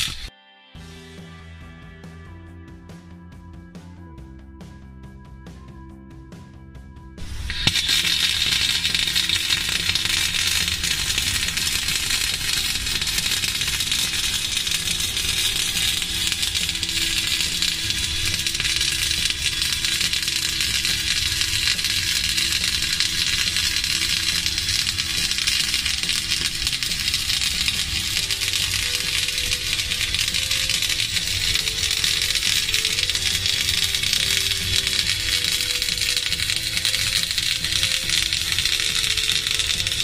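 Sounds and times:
welding arc crackle and sizzle: 0.0s - 0.3s, 7.2s - 40.0s.

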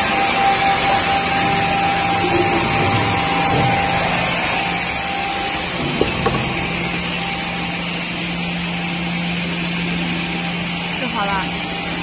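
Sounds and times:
dust extraction rushing: 0.0s - 8.8s
motor hum: 0.0s - 12.0s.

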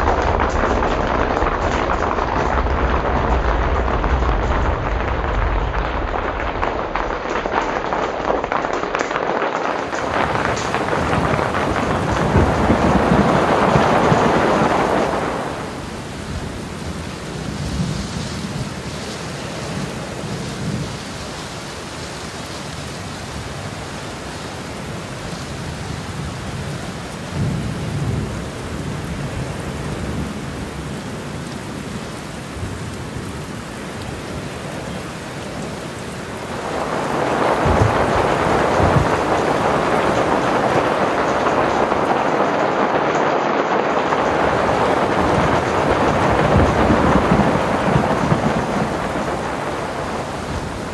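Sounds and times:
low rumbles: 0.0s - 8.9s
hail and rain on fabric roof: 0.0s - 50.9s.

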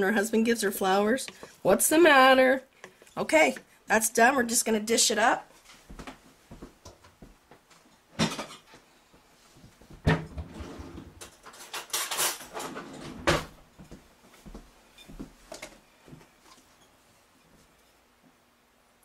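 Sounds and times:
dishes clunking: 8.2s - 8.7s
dishes rattling: 8.2s - 8.7s.

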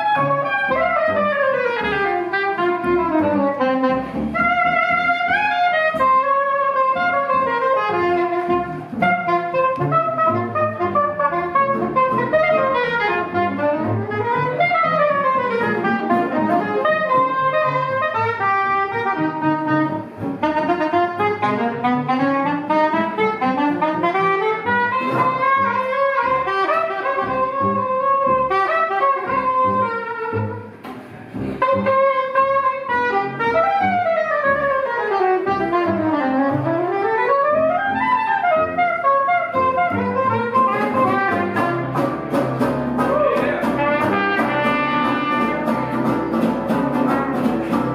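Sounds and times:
guitar: 0.0s - 47.9s
plucked upright bass: 0.0s - 47.9s
saxophone and brass: 0.0s - 47.9s.

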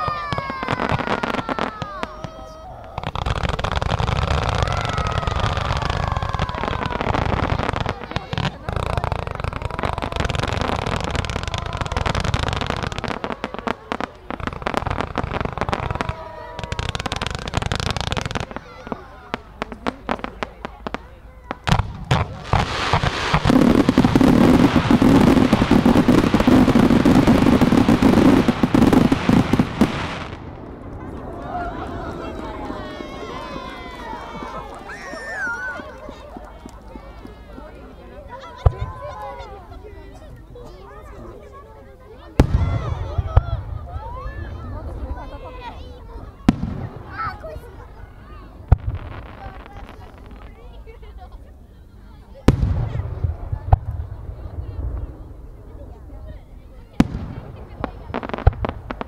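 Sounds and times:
whistling fireworks: 0.0s - 39.6s
fireworks crackling and bursting: 0.0s - 40.1s, 42.4s - 51.6s, 52.2s - 59.0s.

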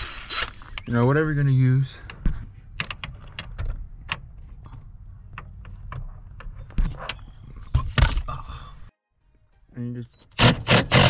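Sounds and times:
low background rumble: 0.1s - 8.9s.

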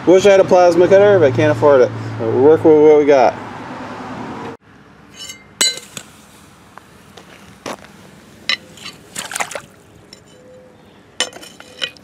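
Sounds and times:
muddy water sloshing: 8.6s - 10.4s
sharp splashes: 8.7s - 10.0s.

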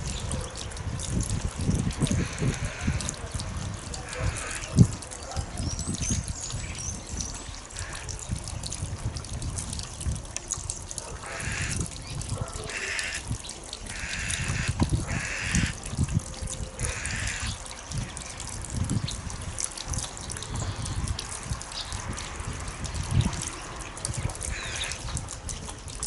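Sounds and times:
harsh rasping bird calls: 2.2s - 3.0s, 4.0s - 4.8s, 6.0s - 8.2s, 11.2s - 15.8s, 16.8s - 17.7s, 24.5s - 25.0s.

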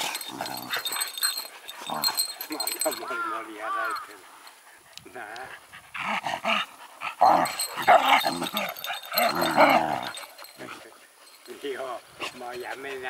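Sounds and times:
dogs growling: 0.0s - 3.1s, 5.4s - 12.6s.

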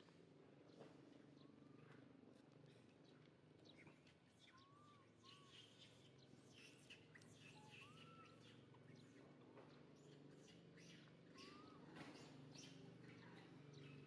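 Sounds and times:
faint high chirping calls: 3.8s - 14.0s.

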